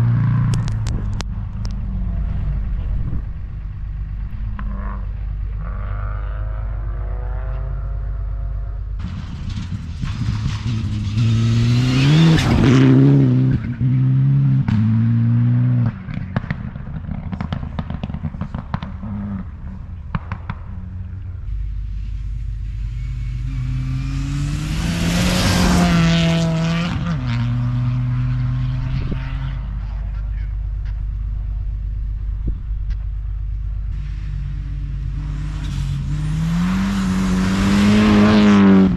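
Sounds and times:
rally car engine full throttle: 0.0 - 38.9
rally car passing by: 4.0 - 16.4, 20.8 - 30.5, 33.9 - 38.9
exhaust pops and cracks: 16.0 - 21.0.

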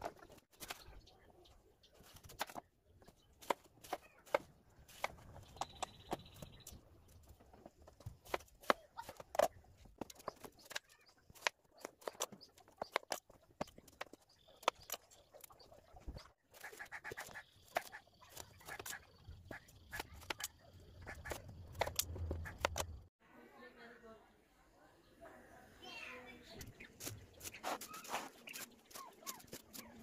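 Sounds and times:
knife cutting watermelon: 27.0 - 30.0.

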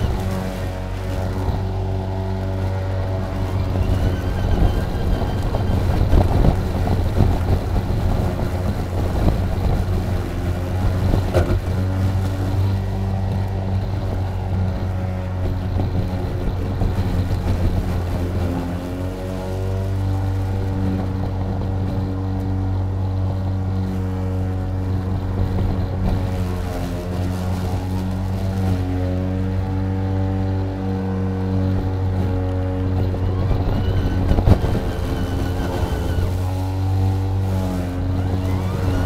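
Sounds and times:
electric lawn mower running: 0.0 - 39.0
mower cutting thick grass: 0.0 - 39.0.

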